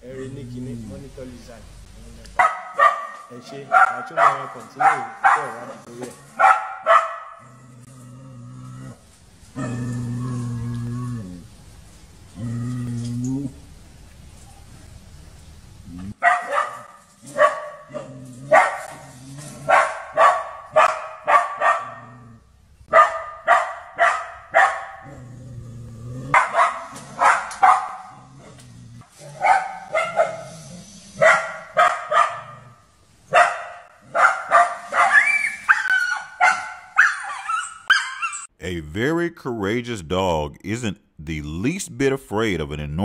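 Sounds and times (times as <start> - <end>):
dog barking sharply: 2.4 - 5.6, 6.4 - 7.4, 16.2 - 17.9, 18.5 - 18.9, 19.7 - 22.0, 22.9 - 25.0, 26.4 - 28.1, 29.4 - 30.4, 31.2 - 32.5, 33.3 - 38.3.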